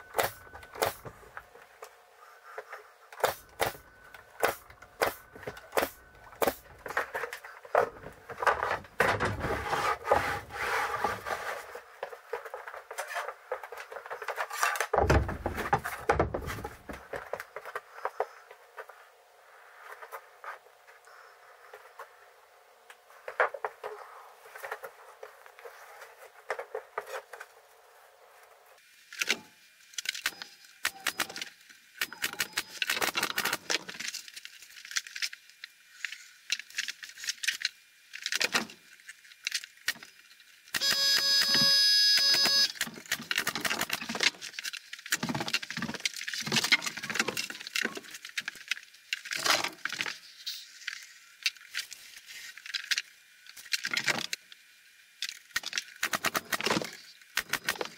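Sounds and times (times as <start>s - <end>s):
tools and wood rattling on bench: 4.5s - 18.1s.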